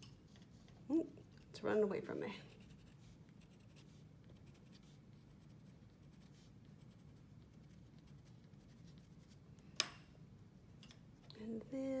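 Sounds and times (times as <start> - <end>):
pencil scratching on paper: 2.3 - 9.4.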